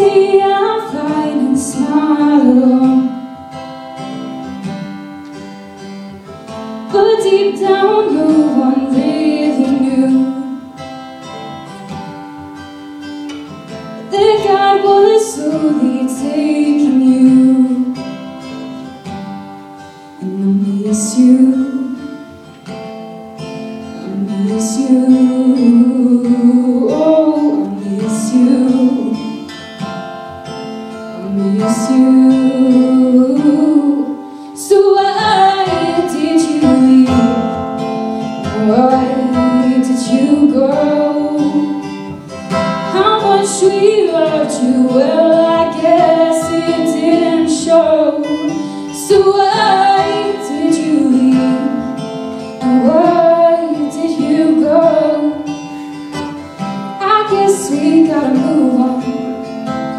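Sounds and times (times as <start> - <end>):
woman singing: 0.0 - 12.8, 13.4 - 19.4, 20.1 - 22.6, 23.8 - 30.2, 31.1 - 59.9
acoustic guitar: 0.0 - 59.9.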